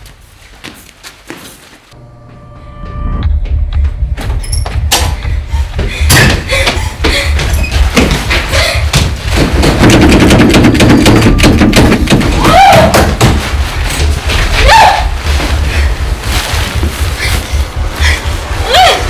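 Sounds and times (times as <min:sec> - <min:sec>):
deep pulsing rumble: 0:02.8 - 0:07.9, 0:13.5 - 0:19.0
sharp knocks or footfalls: 0:05.8 - 0:15.6
woman crying out: 0:18.6 - 0:19.0.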